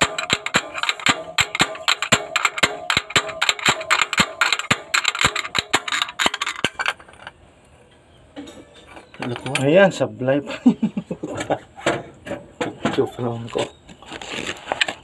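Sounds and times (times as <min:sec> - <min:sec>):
slide hammer clanking on metal: 0:00.0 - 0:07.4, 0:08.4 - 0:09.8.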